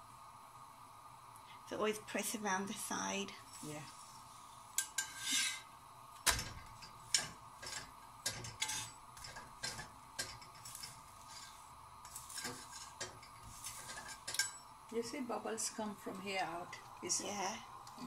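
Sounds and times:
faint steady hum: 0.0 - 18.0
spatula tapping and scraping griddle: 4.8 - 14.7.

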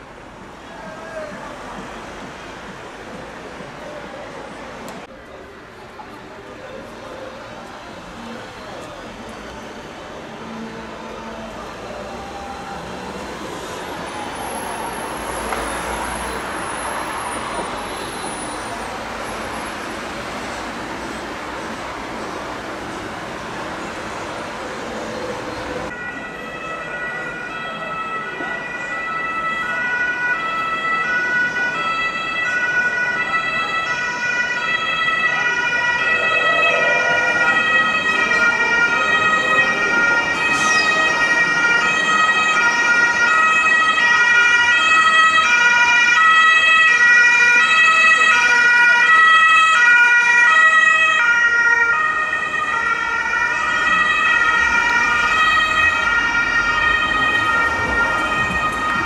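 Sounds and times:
two-tone emergency siren: 10.2 - 20.3, 25.3 - 59.0.

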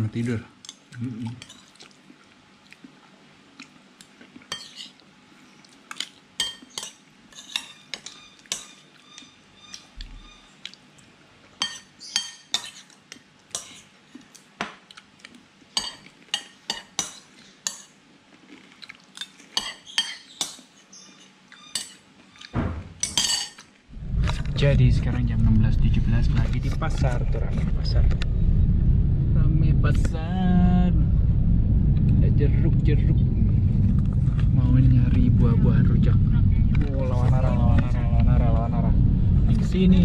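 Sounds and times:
metal spoon scraping ceramic bowl: 4.5 - 4.9, 7.3 - 8.8.

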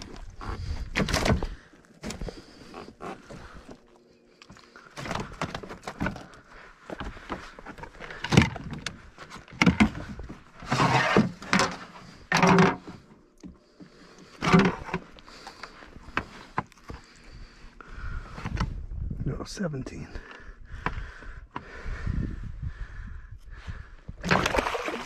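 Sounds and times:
gear scraping on kayak: 9.1 - 12.2.

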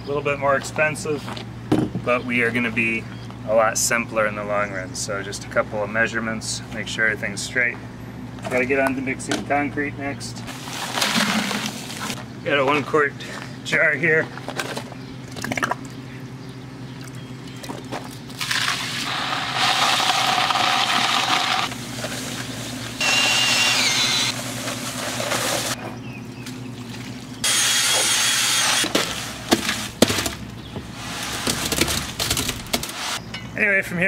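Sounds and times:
concrete churning in bucket: 10.5 - 12.2, 18.4 - 22.9
drill with paddle mixer whining: 19.0 - 21.7, 23.0 - 25.7, 27.4 - 29.0.

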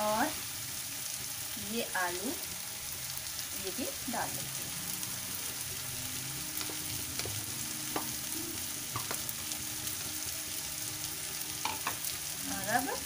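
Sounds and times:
vegetables sizzling in hot oil: 0.0 - 13.0.

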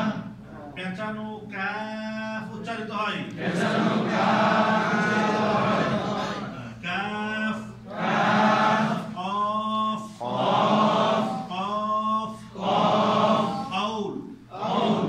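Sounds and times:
group chanting in unison: 0.0 - 0.4, 3.3 - 6.9, 7.6 - 9.3, 9.9 - 15.0
man chanting: 11.0 - 12.6, 13.2 - 14.4.

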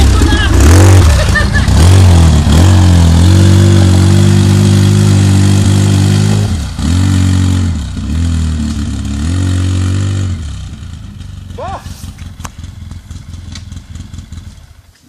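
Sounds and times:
engine revving hard: 0.0 - 10.6.

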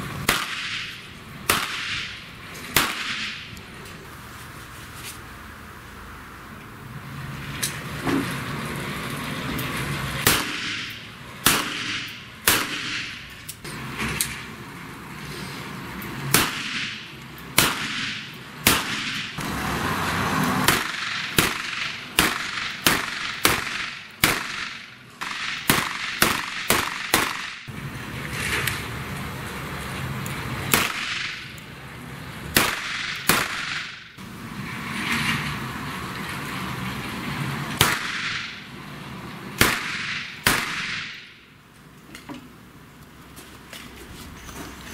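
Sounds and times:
handgun shots echoing: 0.3 - 2.1, 2.8 - 3.4, 10.2 - 13.2, 17.6 - 19.2, 20.7 - 27.6, 39.6 - 41.3.

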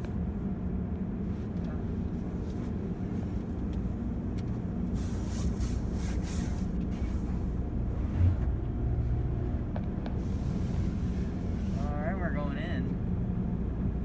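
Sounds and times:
low cabin rumble: 0.0 - 14.0
spray wand hissing on car: 4.8 - 7.5, 10.1 - 11.8.

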